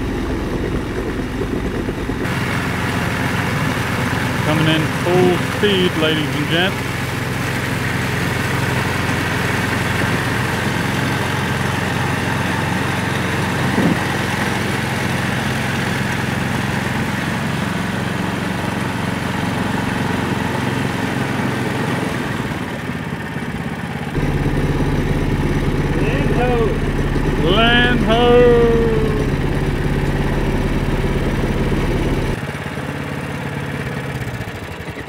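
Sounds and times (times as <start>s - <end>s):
small engine at full throttle: 0.0s - 35.0s
splashing spray: 2.3s - 21.8s.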